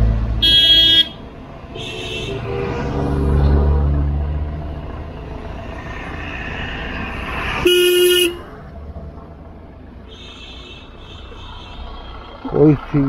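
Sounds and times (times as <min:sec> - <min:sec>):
motorcycle riding rumble: 0:00.0 - 0:13.0
vehicle horn honk: 0:00.4 - 0:02.6, 0:07.6 - 0:08.5, 0:10.1 - 0:12.4.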